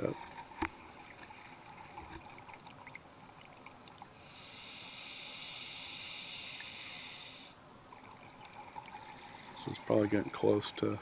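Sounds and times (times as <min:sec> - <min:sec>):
scuba regulator hissing: 0:04.2 - 0:07.6.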